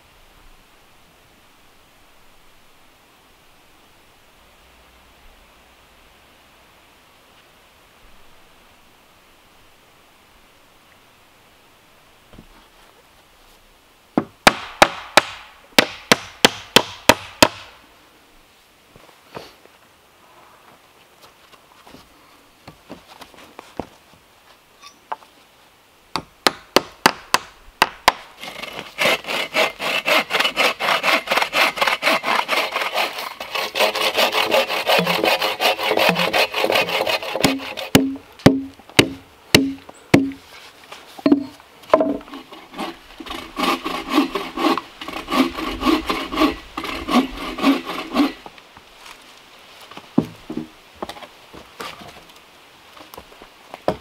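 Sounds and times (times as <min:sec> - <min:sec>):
hatchet chopping log: 0:14.2 - 0:17.8, 0:26.2 - 0:29.2, 0:33.8 - 0:40.4
hand saw cutting wood: 0:28.1 - 0:40.4, 0:41.9 - 0:48.5.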